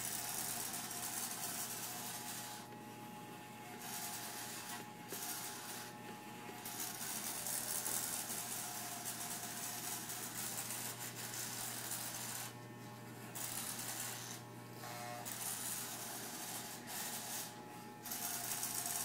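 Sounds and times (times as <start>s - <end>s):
clippers cutting hair rasp: 0.0s - 19.0s
electric hair clippers buzzing: 0.0s - 19.0s.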